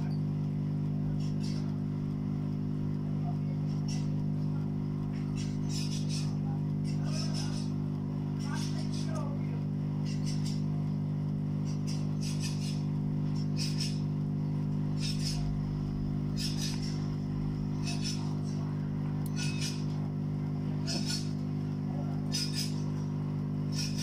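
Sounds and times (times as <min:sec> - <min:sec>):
hot air station hum: 0:00.0 - 0:24.0.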